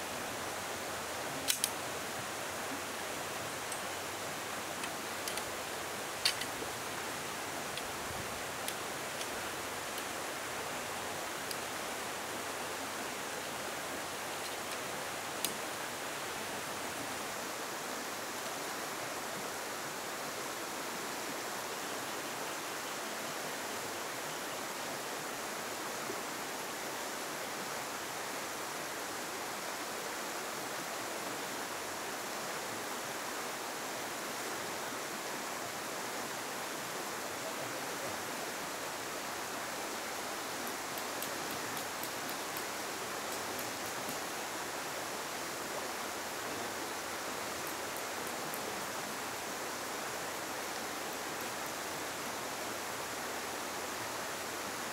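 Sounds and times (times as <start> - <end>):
river rushing over its bed: 0.0 - 54.9
sharp click: 1.5 - 1.8.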